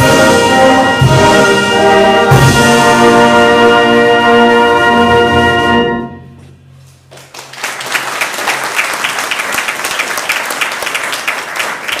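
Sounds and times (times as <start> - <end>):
brass band chord: 0.0 - 6.6
audience applause: 7.1 - 12.0.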